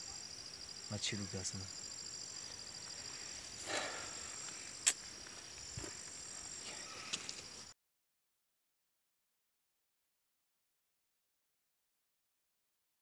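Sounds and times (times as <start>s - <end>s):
insects trilling: 0.0s - 7.8s.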